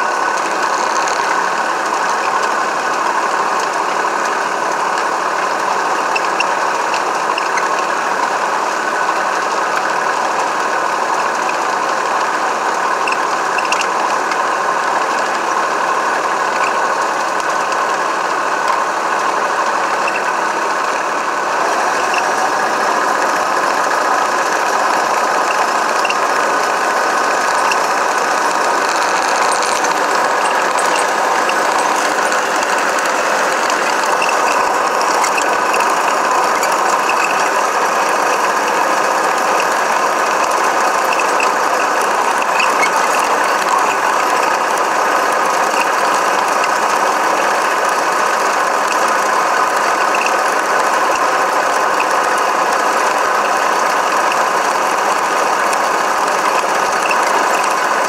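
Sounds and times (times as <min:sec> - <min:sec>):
motor and gears whirring: 0:00.0 - 0:58.0
small ticks: 0:00.4 - 0:01.4, 0:13.0 - 0:13.9, 0:25.4 - 0:26.2, 0:27.3 - 0:38.5, 0:40.4 - 0:44.6.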